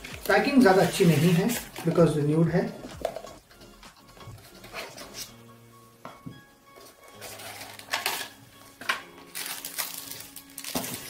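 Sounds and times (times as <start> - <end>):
soft background music: 0.0 - 11.0
cardboard scraping and rustling: 0.6 - 2.0, 7.2 - 8.3.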